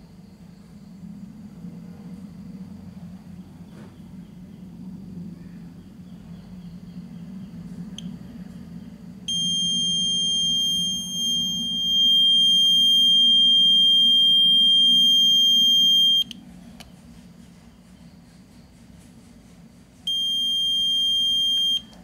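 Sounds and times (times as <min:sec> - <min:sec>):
multimeter continuity beep: 0:09.3 - 0:16.4, 0:20.1 - 0:22.0.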